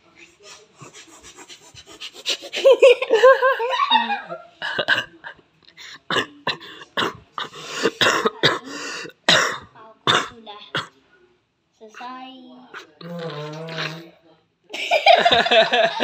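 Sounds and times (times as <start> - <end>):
child giggling: 0.6 - 4.4
hands squelching fart noises: 13.0 - 14.1.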